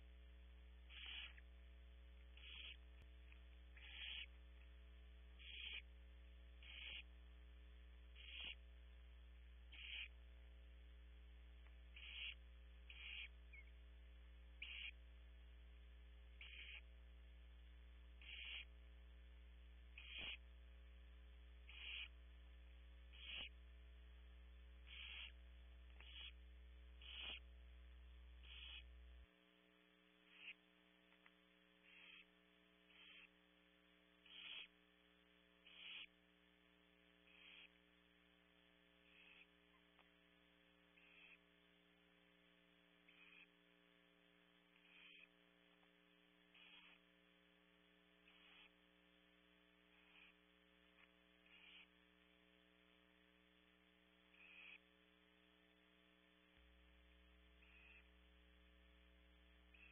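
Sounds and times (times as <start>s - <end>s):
steady electrical hum: 0.0s - 59.9s
owl nestlings hissing snores: 0.8s - 1.5s, 2.3s - 3.1s, 3.7s - 4.4s, 5.3s - 7.3s, 8.0s - 8.7s, 9.6s - 10.3s, 11.8s - 13.7s, 14.5s - 15.1s, 16.3s - 17.0s, 18.1s - 18.8s, 19.8s - 20.6s, 21.6s - 22.2s, 23.0s - 23.6s, 24.8s - 27.6s, 28.3s - 29.1s, 30.2s - 30.7s, 31.8s - 33.4s, 34.1s - 34.8s, 35.6s - 36.2s, 37.2s - 37.8s, 39.0s - 39.8s, 40.8s - 41.5s, 43.0s - 43.6s, 44.7s - 45.4s, 46.4s - 47.2s, 48.2s - 48.9s, 49.6s - 52.1s, 54.3s - 54.9s, 57.6s - 58.2s, 59.7s - 59.9s.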